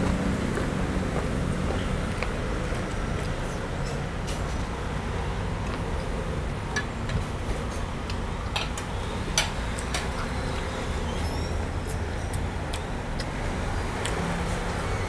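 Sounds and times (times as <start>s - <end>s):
chewing clicks and crunches: 12.3s - 14.3s.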